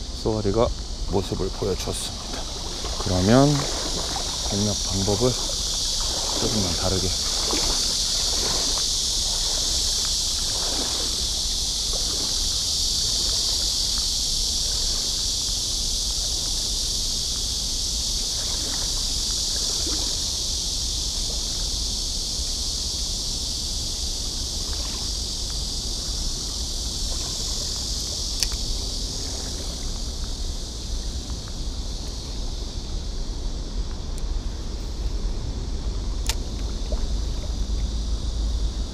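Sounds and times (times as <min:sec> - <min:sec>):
insects chorus: 0:00.0 - 0:38.9
sharp click: 0:28.4 - 0:28.6.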